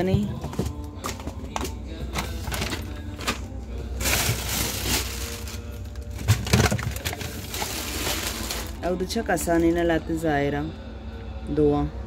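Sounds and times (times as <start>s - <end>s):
plastic containers knocking on shelf: 0.0s - 2.8s, 6.2s - 7.2s
plastic bag crinkling: 2.2s - 9.7s.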